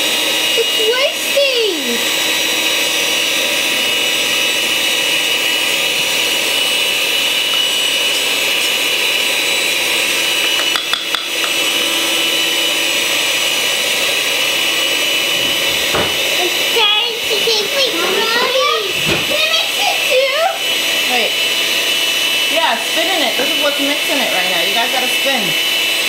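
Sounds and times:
electric stand mixer running: 0.0 - 26.0.

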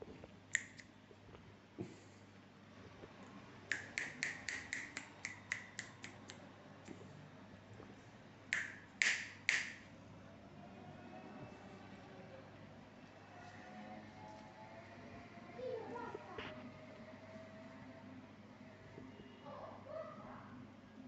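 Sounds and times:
fingers snapping: 0.5 - 0.9, 3.7 - 7.0, 8.5 - 9.9.

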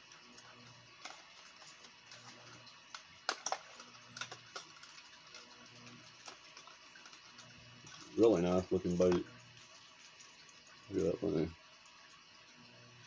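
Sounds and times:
plastic package clicking and crackling: 0.0 - 8.2.

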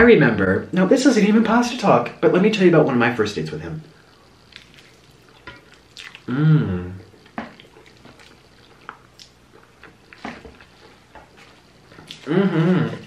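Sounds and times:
wet chewing and mouth smacks: 4.4 - 6.3, 7.0 - 12.3
person short voiced sound: 6.3 - 7.0, 12.3 - 13.0.

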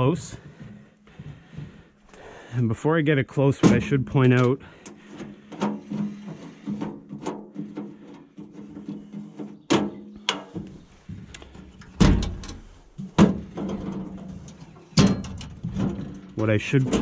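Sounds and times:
metal cover clunking and rattling: 3.5 - 17.0.

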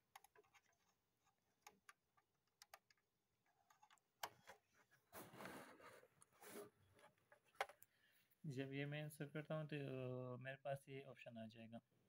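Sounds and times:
clicks of handling cables: 0.0 - 5.0, 6.2 - 7.9
rubbing handling noise: 3.5 - 7.8.

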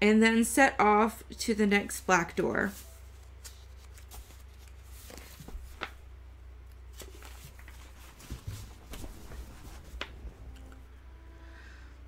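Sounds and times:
low hum: 6.0 - 12.0.

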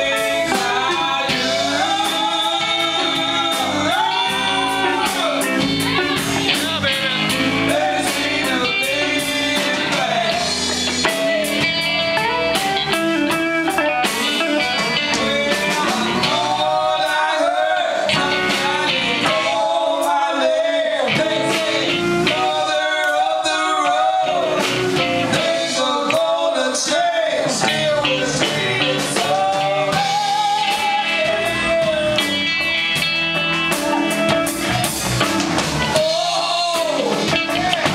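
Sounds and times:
women singing: 0.0 - 11.6, 15.0 - 32.1
bass guitar: 0.0 - 37.9
drums: 0.0 - 37.9
electric guitars: 0.0 - 37.9.

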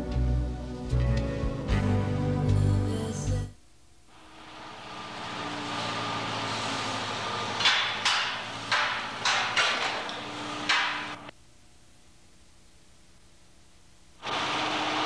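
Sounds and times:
steady machine hum: 0.0 - 15.0
ringing metallic knocks: 7.6 - 11.3.

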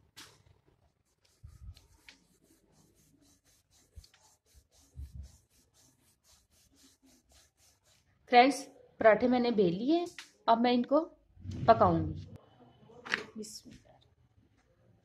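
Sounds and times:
rolling pin rubbing dough: 1.0 - 8.1.

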